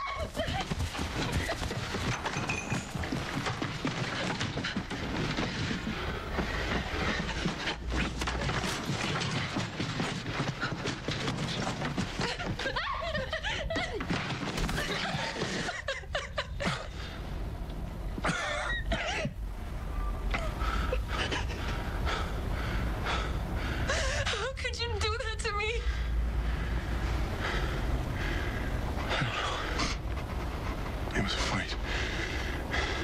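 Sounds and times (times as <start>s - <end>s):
hurried footsteps: 0.0s - 16.0s
woman crying and sobbing: 12.2s - 14.0s.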